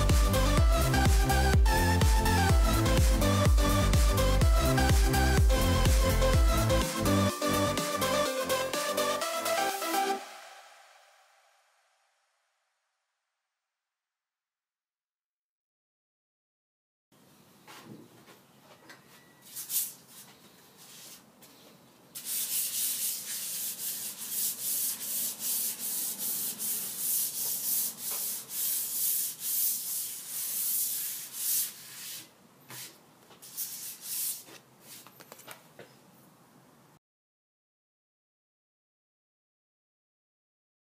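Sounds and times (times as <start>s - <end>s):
hand sanding wood: 22.2s - 35.0s.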